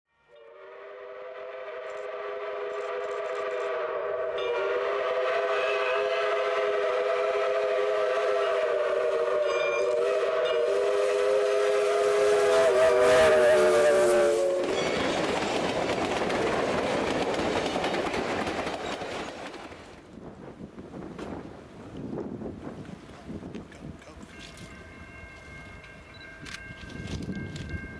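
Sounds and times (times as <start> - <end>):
steam locomotive chime whistle: 0.1 - 15.1
passing train noise: 0.2 - 27.9.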